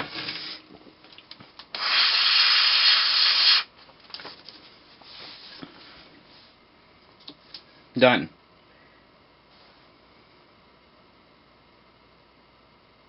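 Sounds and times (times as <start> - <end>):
person blowing hard: 1.7 - 3.7.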